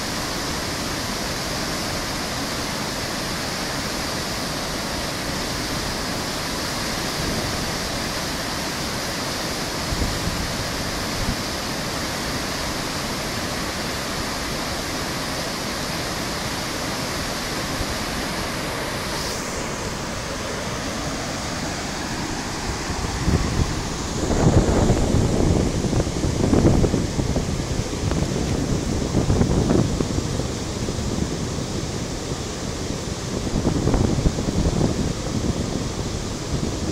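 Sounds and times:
water rushing down a spillway: 0.0s - 36.9s
wind buffeting microphone: 17.7s - 36.9s.

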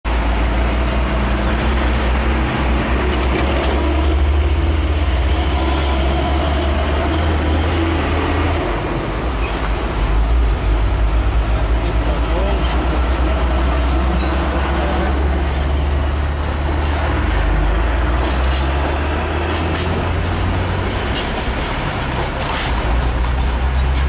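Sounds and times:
road traffic: 0.0s - 24.0s
diesel truck engine rumbling: 0.1s - 24.0s.

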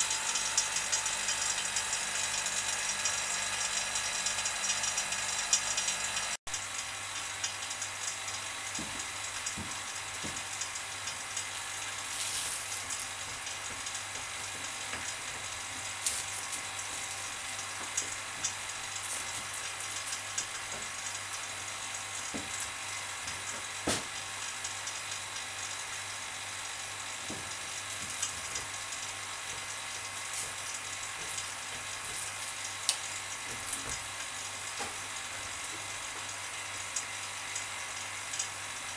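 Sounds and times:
steady hiss with low hum: 6.8s - 38.9s
plastic film clicks and crinkles: 8.7s - 21.2s.

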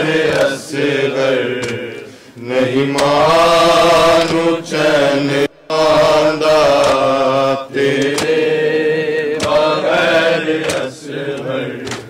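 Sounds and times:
men chanting together: 0.0s - 12.0s
hands slapping chests: 0.2s - 0.6s, 1.6s - 2.1s, 6.7s - 7.2s, 7.9s - 8.4s, 9.4s - 9.8s, 10.6s - 12.0s.

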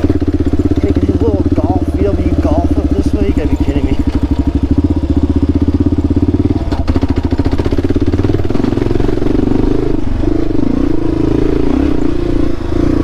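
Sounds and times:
motorcycle engine thumping: 0.0s - 11.1s.

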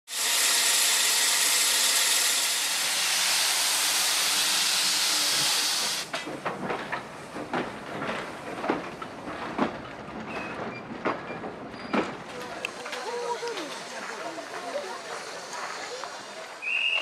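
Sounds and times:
train rolling along track: 0.2s - 17.0s
steam venting hiss: 2.6s - 6.1s.

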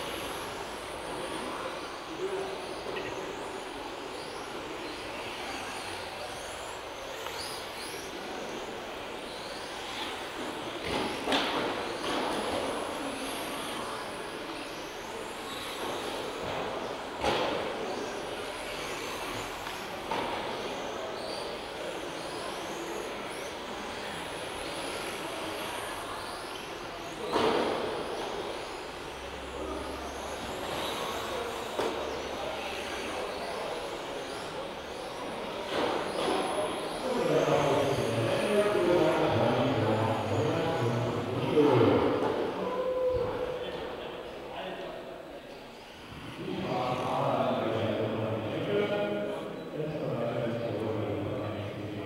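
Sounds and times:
rc car motors whining: 0.0s - 41.6s.

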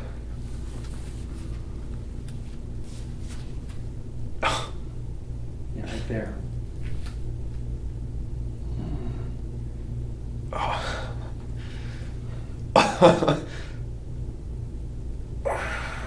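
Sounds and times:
man groaning: 10.5s - 11.2s, 15.4s - 16.0s
man breathing in pain: 15.5s - 16.0s.

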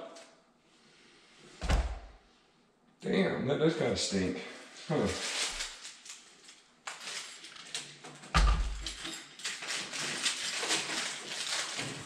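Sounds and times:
heavy low thump: 1.6s - 2.1s.

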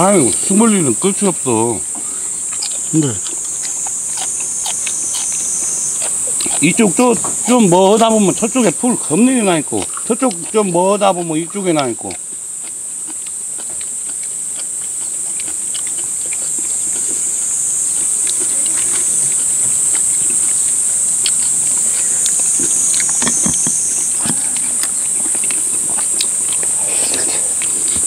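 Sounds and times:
insects droning: 0.0s - 28.0s.

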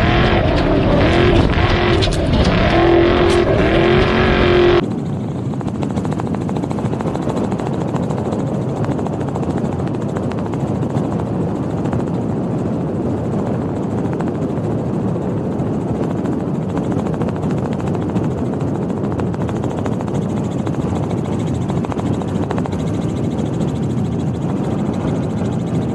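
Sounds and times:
dense vehicle roar: 0.0s - 4.9s.

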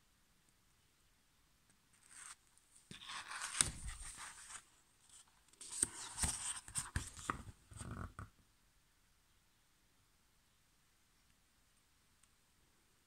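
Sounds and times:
book page rustling: 2.0s - 7.8s.

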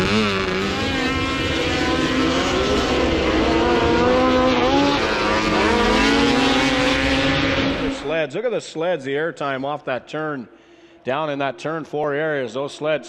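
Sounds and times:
snowmobile engines racing past: 0.0s - 8.2s.

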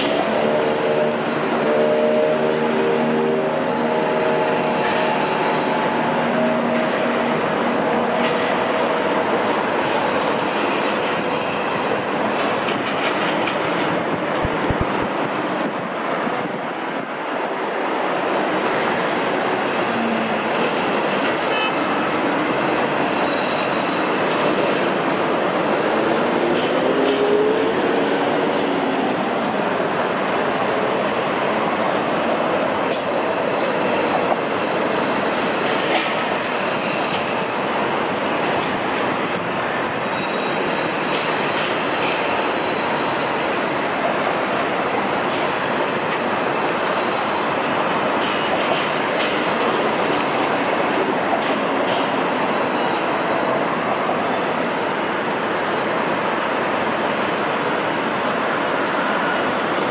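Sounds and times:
heavy machinery: 0.0s - 17.1s, 18.4s - 43.6s, 44.4s - 57.4s
traffic: 0.0s - 59.9s
metallic squeals: 21.5s - 27.3s, 40.0s - 43.8s.

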